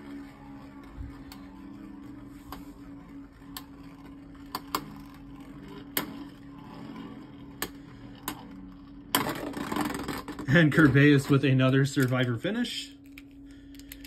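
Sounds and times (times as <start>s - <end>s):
spinning tops whirring on plastic: 0.0s - 14.0s
spinning tops colliding clicks: 4.4s - 6.4s.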